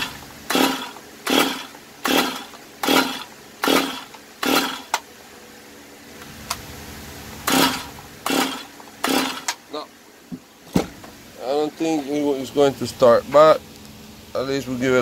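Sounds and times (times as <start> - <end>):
chainsaw recoil starter pulls: 0.0 - 5.0, 7.4 - 9.6.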